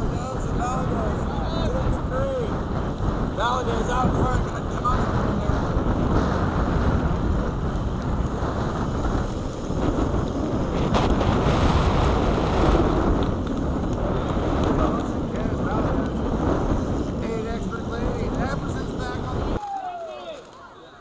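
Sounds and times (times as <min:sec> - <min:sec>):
low rumble from bike ride: 0:00.0 - 0:19.6
wind buffeting microphone: 0:00.0 - 0:19.6.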